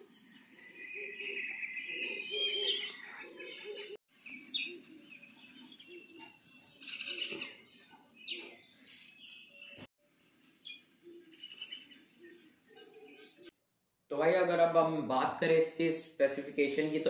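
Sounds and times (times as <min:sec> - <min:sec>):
birds chirping: 0:00.0 - 0:13.5.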